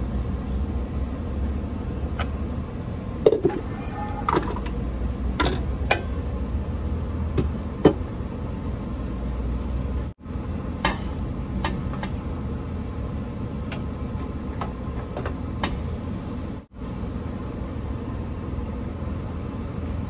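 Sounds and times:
steady low hum: 0:04.7 - 0:20.0.

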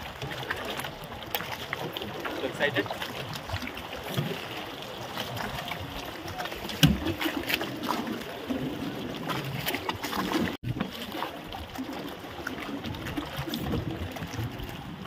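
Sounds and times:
water splashing against boat hull: 0:00.0 - 0:15.0
knocks on boat: 0:06.7 - 0:07.2.

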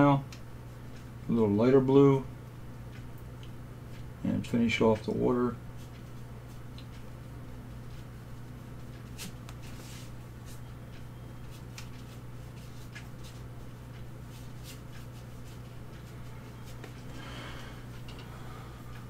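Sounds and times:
steady low hum: 0:00.0 - 0:19.0
brush strokes on paper: 0:07.8 - 0:10.6, 0:11.4 - 0:17.0.

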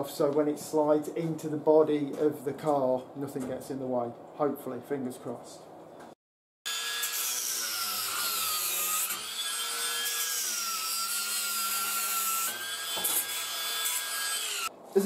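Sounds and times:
angle grinder grinding bolts: 0:06.7 - 0:14.7.

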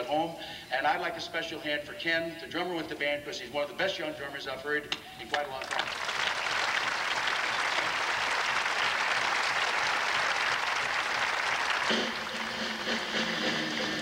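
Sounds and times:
audience applauding: 0:05.3 - 0:14.0
music: 0:10.8 - 0:14.0.

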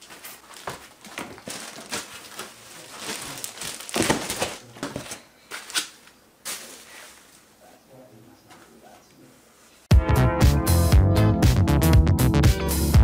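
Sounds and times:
plastic wrap crinkling: 0:00.0 - 0:07.5.

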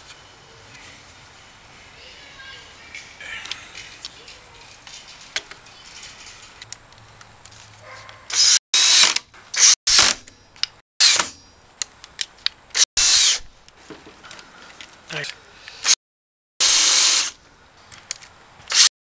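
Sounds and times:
cordless drill boring into wood: 0:08.3 - 0:10.1, 0:13.0 - 0:13.4, 0:16.6 - 0:17.4.

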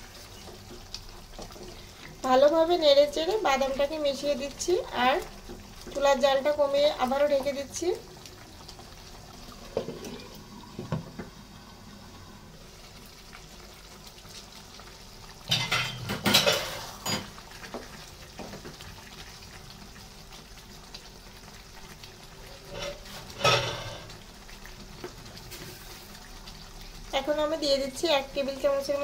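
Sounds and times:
low steady simmer: 0:00.0 - 0:29.0
spatula scraping a pan: 0:22.5 - 0:24.2.

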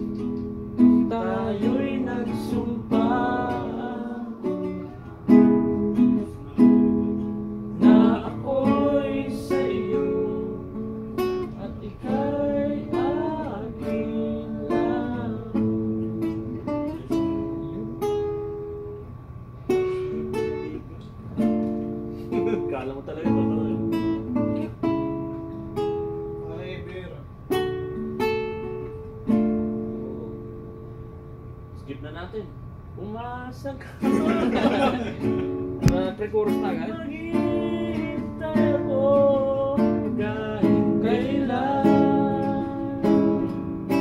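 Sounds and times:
acoustic guitar strumming: 0:00.0 - 0:31.8, 0:33.4 - 0:44.0
man singing: 0:01.0 - 0:04.9, 0:07.8 - 0:16.0, 0:35.8 - 0:43.6.

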